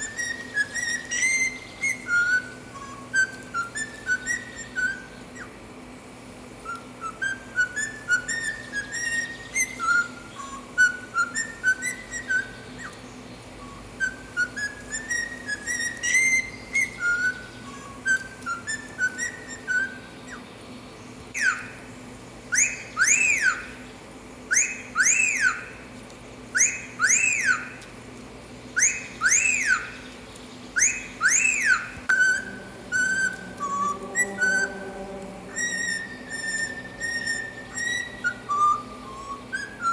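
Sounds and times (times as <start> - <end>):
bird whistling a tune: 0.0 - 5.6, 6.6 - 20.5, 21.3 - 21.8, 22.5 - 23.9, 24.5 - 25.9, 26.5 - 27.9, 28.8 - 39.9
bird wolf whistle: 0.0 - 5.6, 6.6 - 20.5, 21.3 - 21.9, 22.5 - 23.9, 24.5 - 25.8, 26.5 - 27.8, 28.8 - 39.9.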